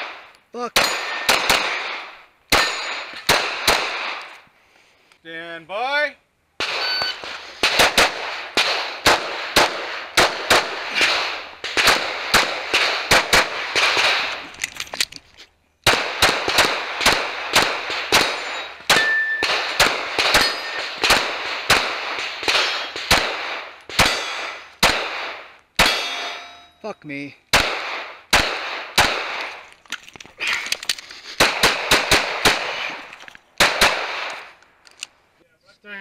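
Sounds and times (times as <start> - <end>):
rapid pistol fire: 0.0 - 4.2, 6.6 - 14.4, 15.8 - 26.1, 27.5 - 29.5, 31.4 - 33.0, 33.6 - 34.5.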